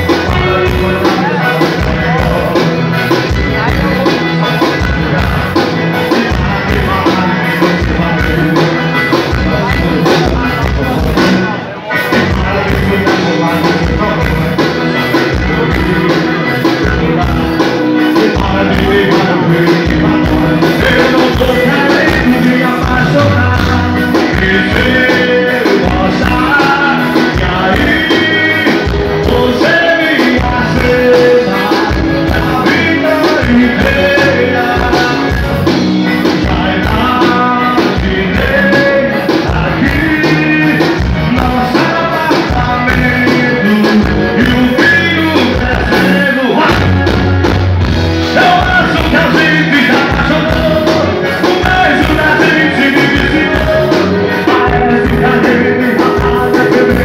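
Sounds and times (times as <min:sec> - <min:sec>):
electric guitar: 0:00.0 - 0:57.0
live band playing loud music: 0:00.0 - 0:57.0
steady drum beat: 0:00.0 - 0:57.0.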